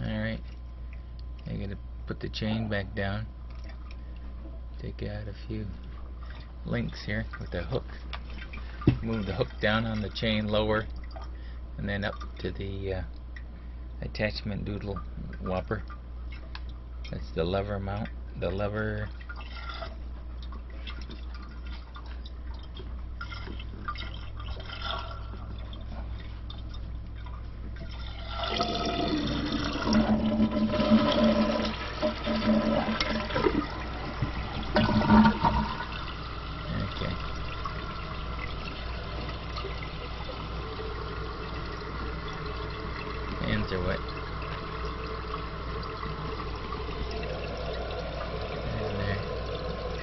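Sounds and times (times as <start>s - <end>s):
toilet flushing: 27.8s - 50.0s
toilet tank refilling hiss: 28.0s - 50.0s.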